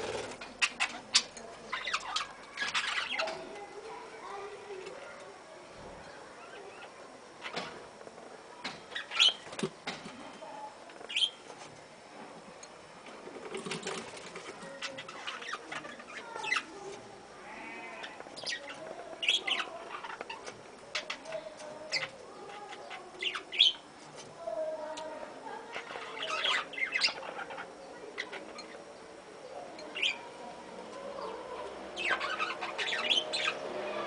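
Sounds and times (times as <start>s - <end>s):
budgerigars chirping and warbling: 0.0s - 3.4s, 9.0s - 9.5s, 11.0s - 11.4s, 14.7s - 16.8s, 17.8s - 23.8s, 25.7s - 29.0s, 29.6s - 30.4s, 31.1s - 34.0s
wing flutters: 13.2s - 15.5s.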